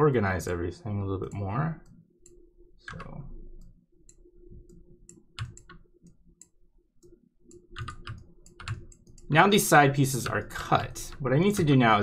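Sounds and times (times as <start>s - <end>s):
computer mouse clicks: 1.2s - 9.4s.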